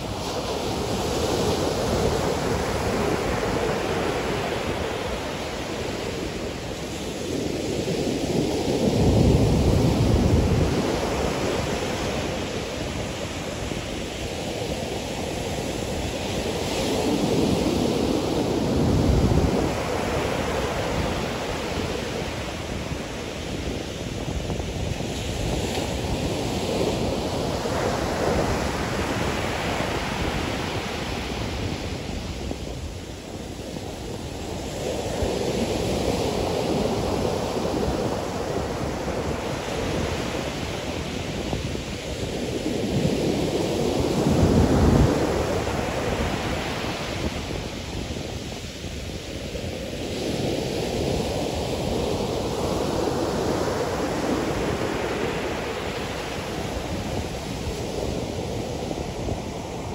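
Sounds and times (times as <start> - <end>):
ocean waves breaking: 0.0 - 59.9.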